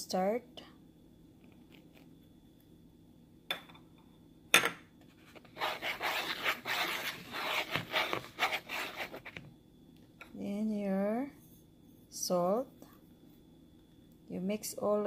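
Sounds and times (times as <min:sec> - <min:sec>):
whisk stirring flour in bowl: 0:05.4 - 0:09.4.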